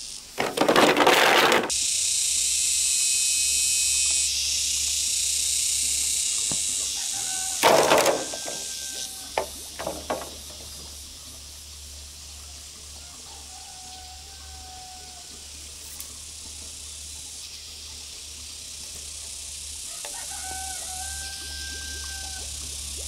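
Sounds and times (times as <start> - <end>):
high-pitched hiss: 0.0 - 0.5, 1.7 - 23.0
bamboo poles clattering: 0.4 - 1.7, 7.6 - 10.9.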